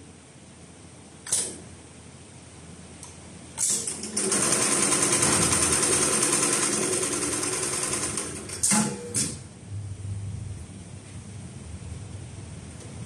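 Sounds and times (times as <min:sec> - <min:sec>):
sewing machine rattling: 0:03.7 - 0:08.8.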